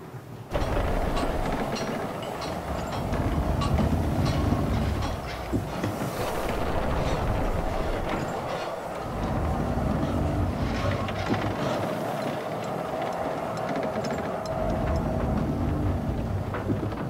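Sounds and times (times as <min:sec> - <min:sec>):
metal clanks and knocks: 0:00.5 - 0:12.8
drilling rig machinery clatter: 0:00.5 - 0:17.0.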